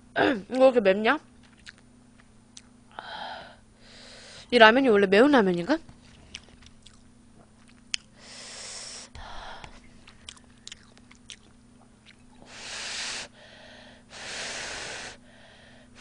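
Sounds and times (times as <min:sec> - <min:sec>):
low steady hum: 0:00.0 - 0:16.0
wet chewing clicks: 0:01.4 - 0:02.7, 0:06.0 - 0:08.1, 0:10.1 - 0:12.4.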